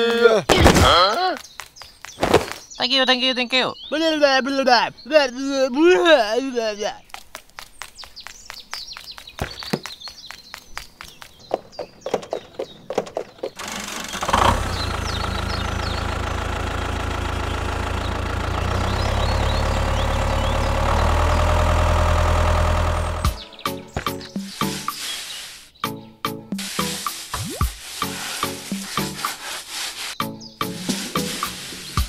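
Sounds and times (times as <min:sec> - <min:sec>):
sharp clicks and taps: 0:07.1 - 0:13.6
tractor engine running: 0:13.0 - 0:24.8.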